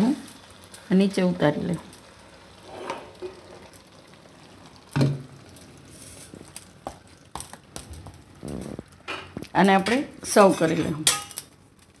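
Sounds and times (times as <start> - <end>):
food sizzling quietly: 0.0 - 12.0
pan clunk on countertop: 5.0 - 5.2.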